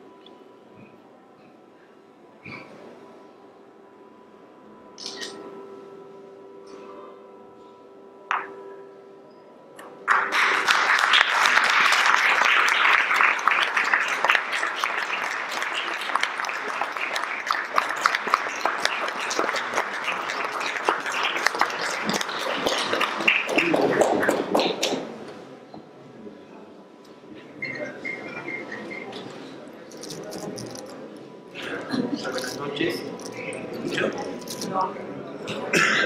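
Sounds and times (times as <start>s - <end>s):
audience applauding: 10.0s - 25.1s.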